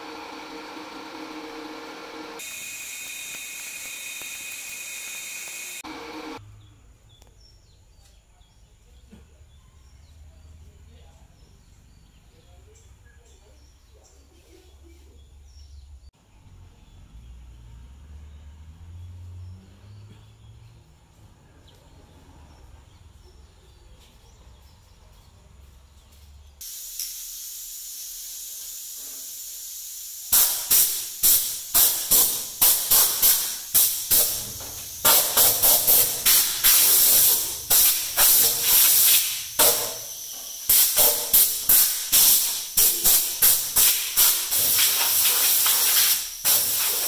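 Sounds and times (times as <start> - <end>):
compressed air blasts: 26.6 - 47.0.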